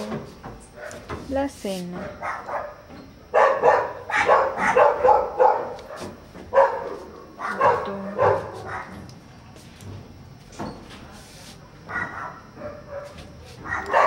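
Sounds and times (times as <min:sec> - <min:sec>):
dog barking: 0:00.8 - 0:01.1, 0:02.0 - 0:09.1, 0:11.9 - 0:14.0.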